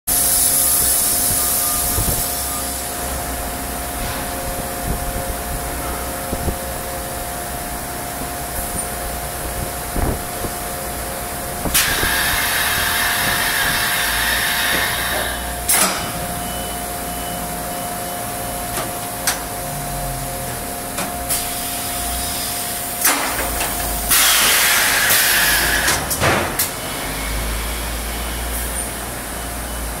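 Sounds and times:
loud air hisses: 0.1s - 3.2s, 11.5s - 16.0s, 21.3s - 23.2s, 23.9s - 28.8s.

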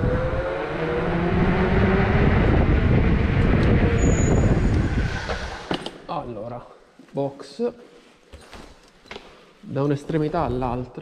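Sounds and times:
wind buffeting on microphone: 0.0s - 5.7s.

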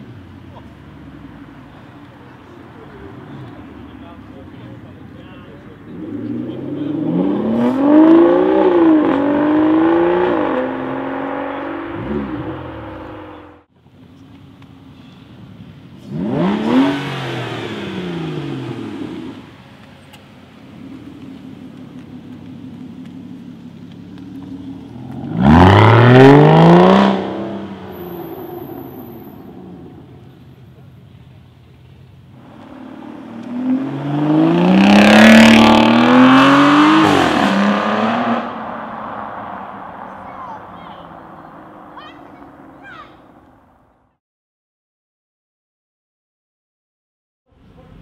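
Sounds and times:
car engine accelerating hard: 2.7s - 13.7s, 16.0s - 19.6s, 20.6s - 30.6s, 32.3s - 42.7s.

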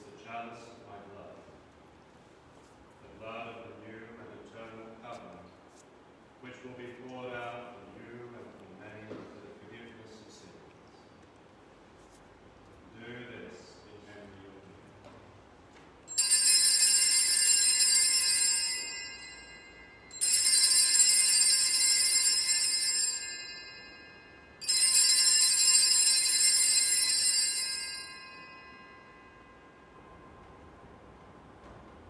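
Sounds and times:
altar bells ringing: 16.1s - 30.6s.

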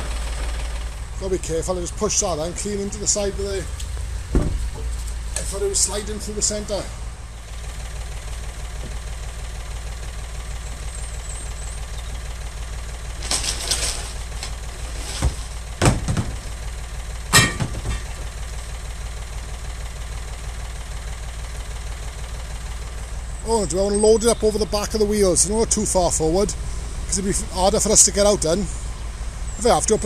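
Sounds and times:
engine idling: 0.0s - 30.0s
scrap metal clanking on wooden floor: 13.2s - 16.4s, 17.3s - 18.2s.

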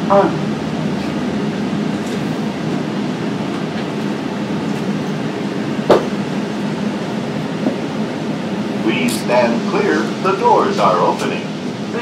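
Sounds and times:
cable car cabin hum: 0.0s - 12.0s
sharp clunk: 5.9s - 6.2s.

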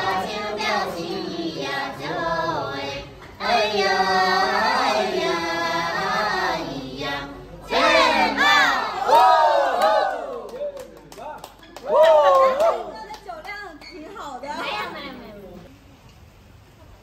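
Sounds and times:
women singing in chorus: 0.0s - 9.0s.

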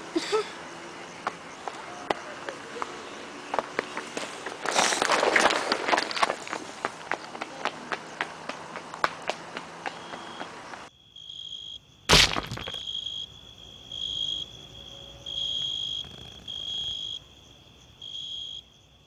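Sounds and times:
footsteps on gravel: 3.6s - 10.5s, 12.1s - 12.8s
cricket chirping: 9.0s - 19.0s
loud thump: 12.1s - 12.8s.

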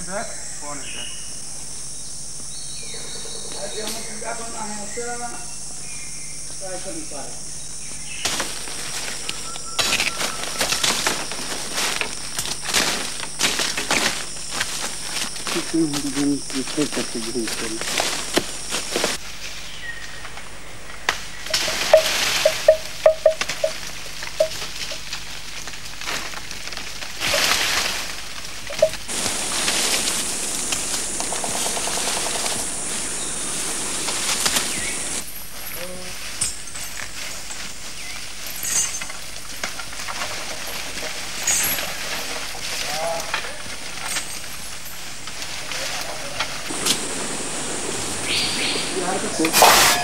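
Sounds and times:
insects chirring: 0.0s - 50.0s
dry leaves rustling and crackling: 7.8s - 50.0s
hiss of brush: 46.7s - 50.0s.

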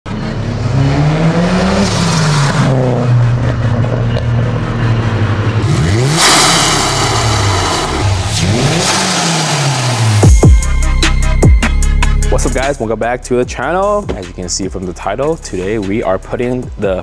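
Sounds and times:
car engine accelerating hard: 0.1s - 10.6s.

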